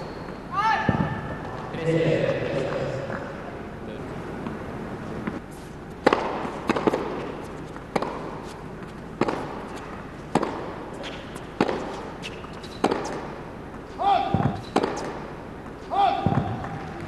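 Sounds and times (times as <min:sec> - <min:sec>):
tennis racket hits: 0:06.0 - 0:16.9
tennis ball bounces: 0:06.0 - 0:17.0.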